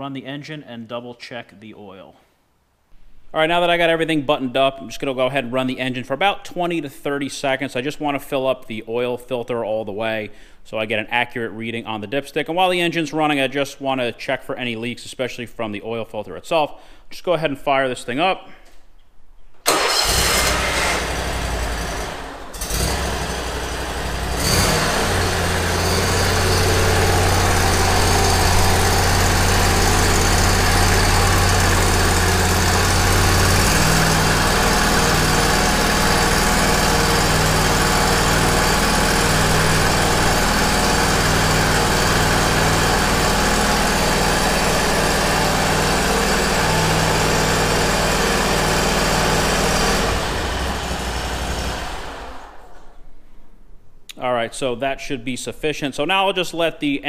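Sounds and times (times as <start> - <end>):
mower engine starting and running: 19.6 - 52.9.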